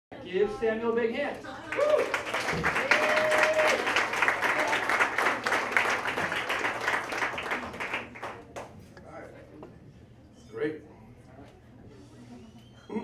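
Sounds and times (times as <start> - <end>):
audience clapping: 1.6 - 8.9.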